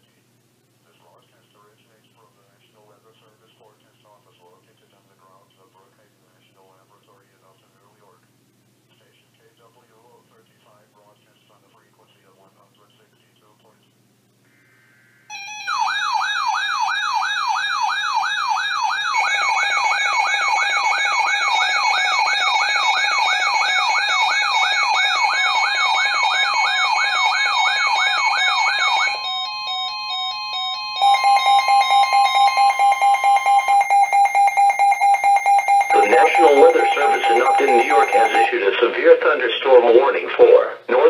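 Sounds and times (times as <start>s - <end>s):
rapid pulsing beep alarm: 15.3s - 38.5s
warbling siren: 15.3s - 38.6s
steady alert tones: 19.2s - 38.7s.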